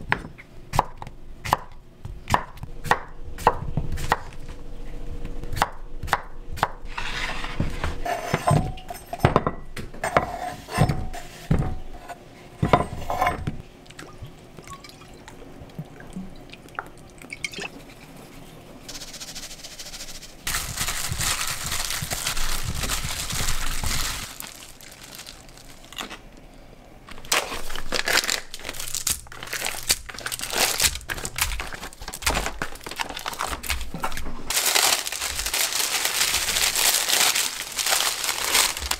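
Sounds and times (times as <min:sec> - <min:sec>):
seasonings poured into bowl: 0:18.9 - 0:20.4
plastic bag crinkling: 0:18.9 - 0:26.3, 0:27.1 - 0:38.9.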